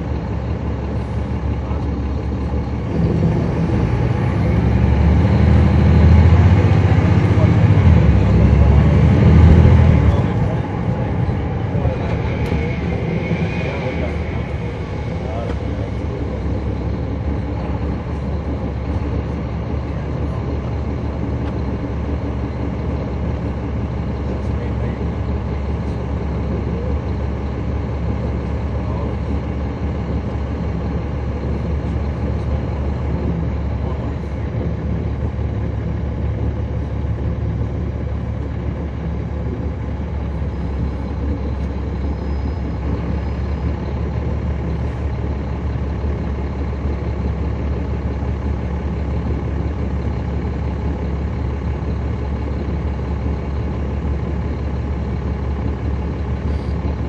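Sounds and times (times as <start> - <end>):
bus diesel engine running: 0.0 - 57.0.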